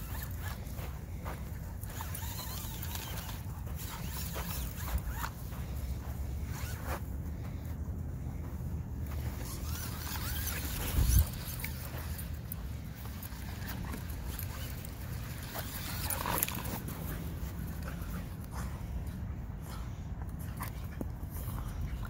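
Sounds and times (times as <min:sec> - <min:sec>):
wind rumble on microphone: 0:09.7 - 0:11.7.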